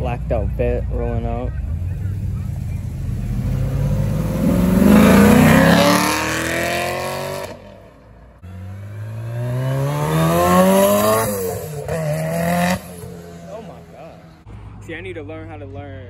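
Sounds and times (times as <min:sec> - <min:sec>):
car engine accelerating: 0:00.0 - 0:14.5
second car accelerating past: 0:02.2 - 0:07.8.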